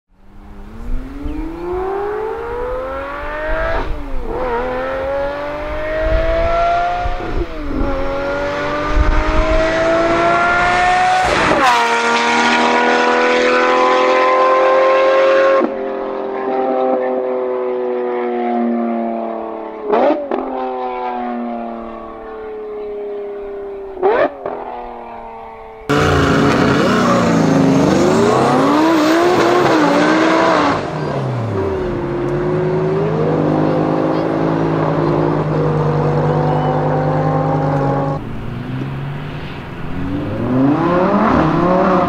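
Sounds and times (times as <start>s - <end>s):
sports car accelerating past: 0.2s - 42.0s
exhaust crack on upshift: 25.9s - 28.0s
engine rev blip: 25.9s - 42.0s.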